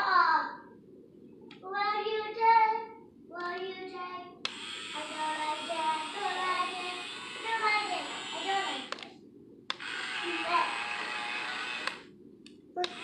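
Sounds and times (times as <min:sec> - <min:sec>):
child singing: 0:01.6 - 0:04.3, 0:05.0 - 0:08.9
steady hiss: 0:05.0 - 0:09.0.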